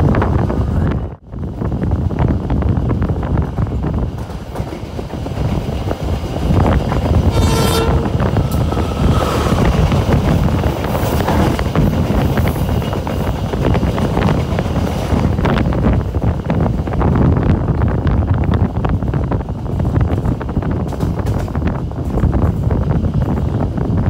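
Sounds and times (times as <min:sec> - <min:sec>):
train rumble and rush: 0:00.0 - 0:24.0
train horn blast: 0:07.2 - 0:08.8.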